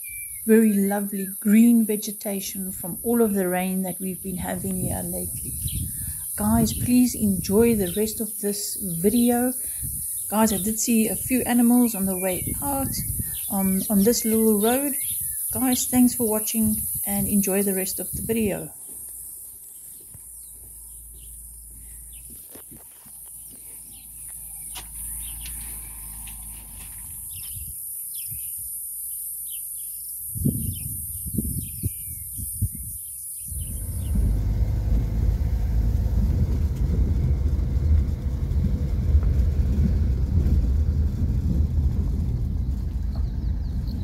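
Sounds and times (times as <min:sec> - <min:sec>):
birds chirping: 0:00.0 - 0:35.9, 0:42.4 - 0:44.0
high insect drone: 0:04.6 - 0:36.2
vehicle rumbling on dirt road: 0:18.9 - 0:28.4, 0:33.5 - 0:44.0
low bumps: 0:19.9 - 0:27.8, 0:33.5 - 0:44.0.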